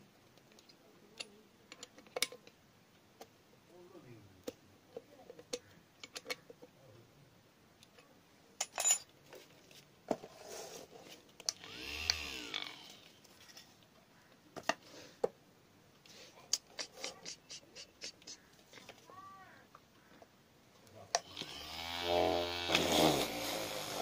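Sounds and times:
drill motor spinning up: 11.5s - 13.1s, 21.2s - 24.0s.

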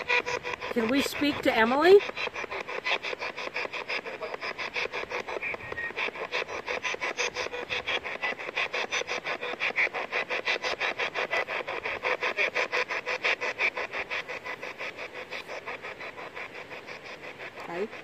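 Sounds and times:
radio static sweeping: 0.0s - 18.0s.

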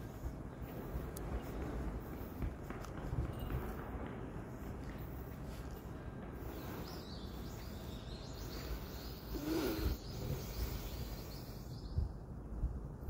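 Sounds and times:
low street rumble: 0.0s - 13.0s
small birds chirping: 4.6s - 12.4s.

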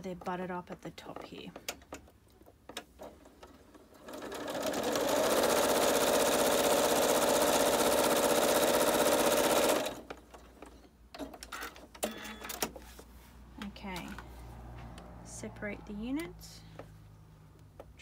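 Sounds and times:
sewing machine stitching: 2.9s - 10.4s.

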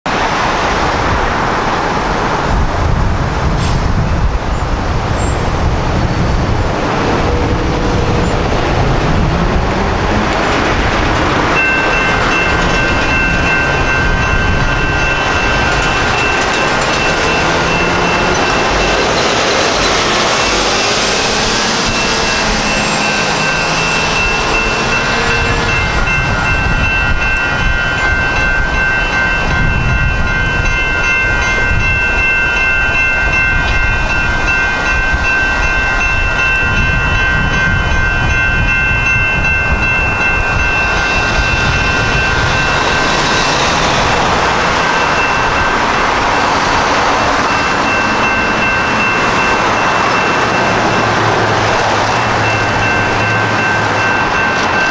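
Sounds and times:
road traffic passing: 0.1s - 54.9s
railroad crossing bell ringing: 6.8s - 54.9s.

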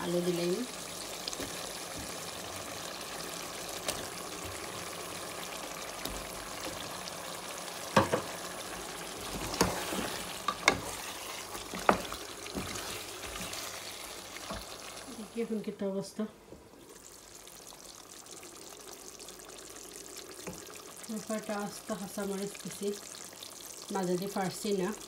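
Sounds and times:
chicken sizzling in oil: 0.0s - 15.9s, 16.7s - 25.0s
wooden spatula stirring: 8.0s - 15.1s.

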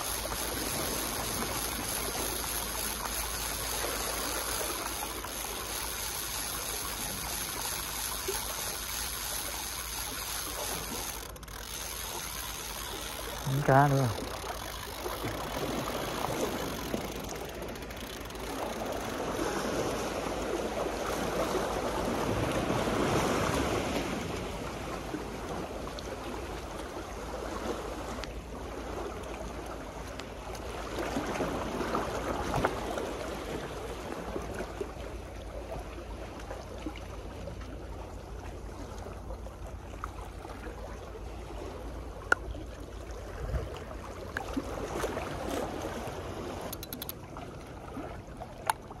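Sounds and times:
sea waves washing: 0.0s - 35.2s
sharp click: 46.7s - 47.2s.

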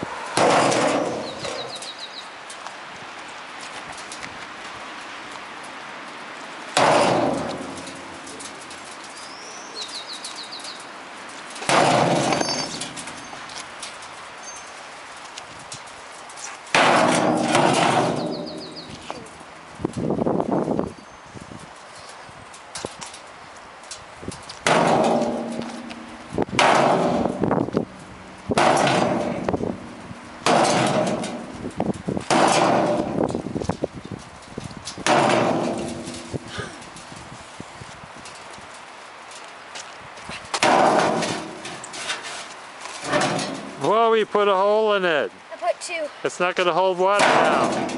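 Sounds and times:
sledgehammer clanging on sheet metal: 0.4s - 2.0s, 6.7s - 9.1s, 11.5s - 14.6s, 16.7s - 19.4s, 24.6s - 27.7s, 28.5s - 33.5s, 34.9s - 37.1s, 40.6s - 44.0s, 47.1s - 47.9s
bird chirping high notes: 18.2s - 19.1s.

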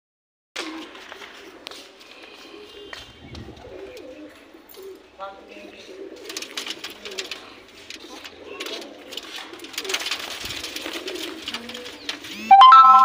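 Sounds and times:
pigeons cooing: 0.6s - 12.6s
wings flapping and scuffling: 6.0s - 12.5s
loud ringing tone: 12.5s - 13.0s.

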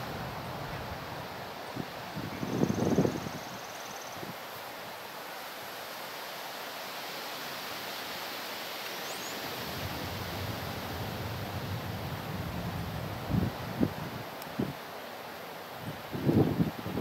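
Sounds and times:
wind rumble on microphone: 0.0s - 3.6s, 9.5s - 14.8s, 15.8s - 17.0s
wind through trees: 0.0s - 17.0s.

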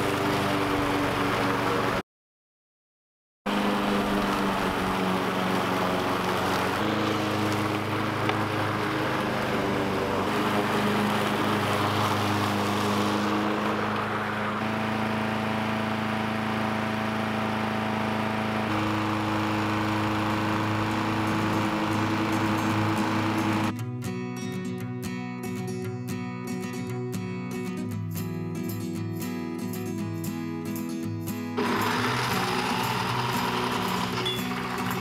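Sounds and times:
lawn mower engine running: 0.0s - 2.0s, 3.5s - 23.8s, 31.5s - 35.0s.

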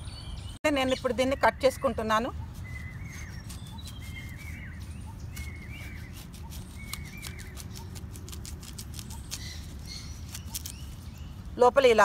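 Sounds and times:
knife cutting through yam: 2.8s - 11.0s.

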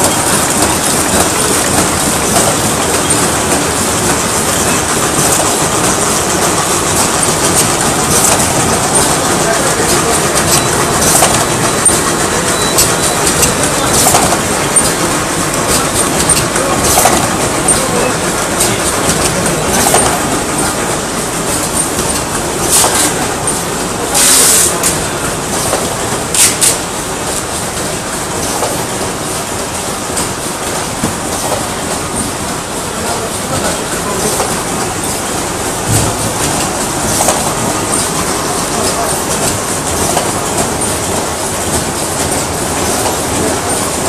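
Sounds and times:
machine clack: 0.0s - 44.0s
packaging machine clatter: 0.0s - 44.0s.

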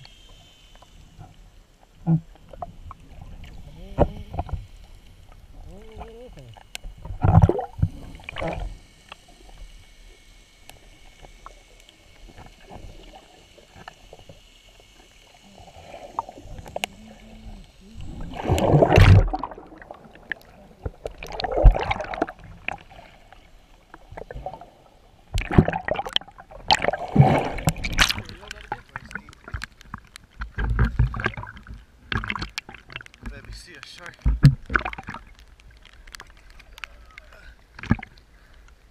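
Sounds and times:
water splashing and sloshing: 0.0s - 38.9s
muffled underwater sound: 2.0s - 8.9s, 15.2s - 22.5s, 25.5s - 32.5s, 36.4s - 38.5s.

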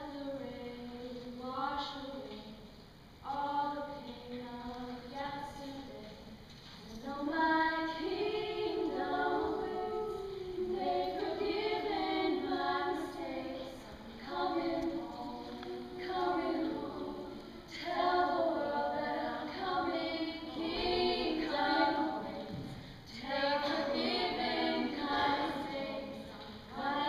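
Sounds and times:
women singing in harmony: 6.9s - 27.0s.

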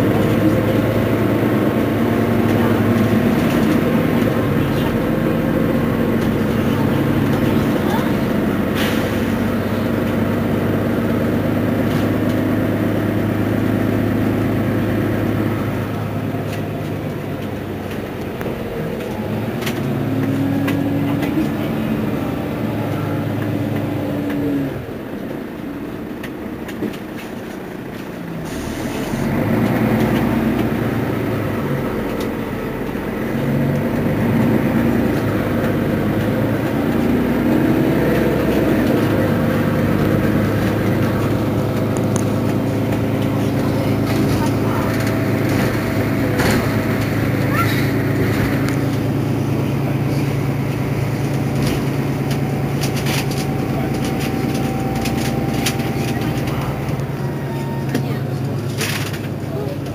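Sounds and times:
bus diesel engine idling: 0.0s - 59.9s.

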